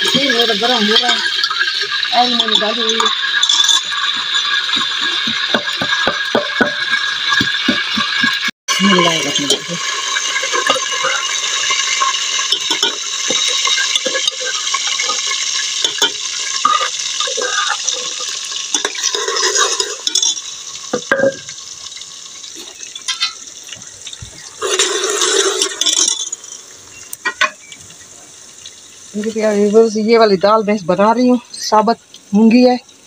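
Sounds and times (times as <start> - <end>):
onions sizzling in oil: 0.0 - 33.0
metal spoon scraping pot: 0.1 - 8.4, 9.0 - 21.5.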